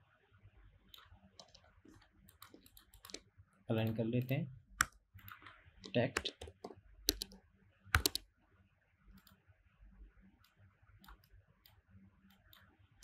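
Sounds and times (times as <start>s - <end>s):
keyboard and mouse clicks: 0.9s - 3.2s, 3.8s - 7.4s, 8.0s - 8.2s, 10.4s - 12.7s.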